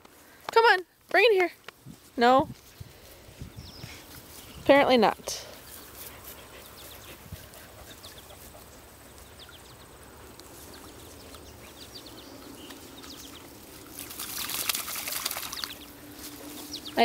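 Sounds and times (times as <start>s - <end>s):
water lapping from dog swimming: 13.9s - 15.8s
dog snapping at water splashing: 14.0s - 15.8s.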